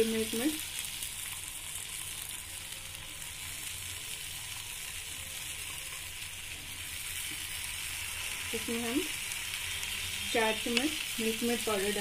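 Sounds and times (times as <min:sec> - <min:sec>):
hot pan sizzling: 0:00.0 - 0:12.0.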